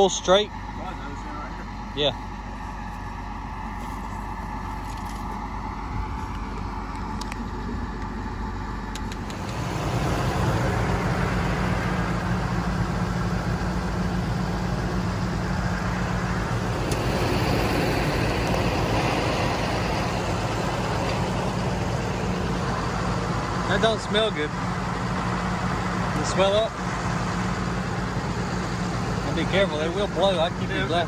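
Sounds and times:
vehicle engine revving: 7.8s - 31.0s.

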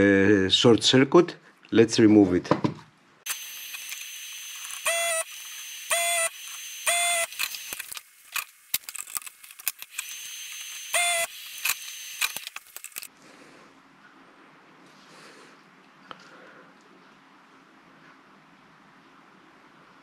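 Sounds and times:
small clicks: 3.3s - 13.1s.

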